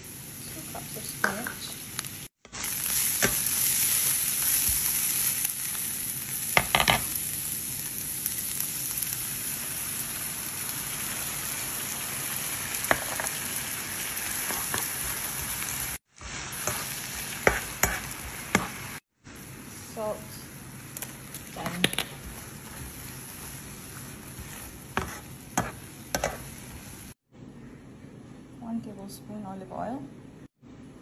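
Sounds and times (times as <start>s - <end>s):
vegetables sizzling in a frying pan: 0.0s - 27.2s
spatula scraping and tapping a pan: 16.6s - 18.8s, 24.3s - 26.8s.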